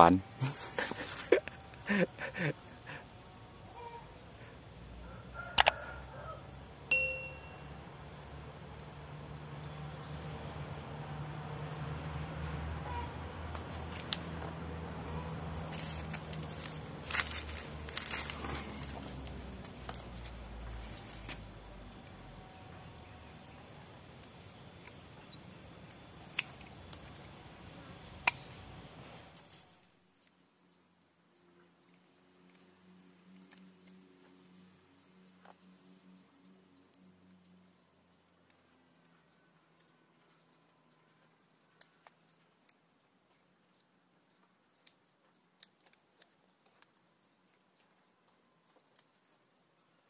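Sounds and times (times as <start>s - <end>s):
tool and wire clicks: 5.6s - 5.8s.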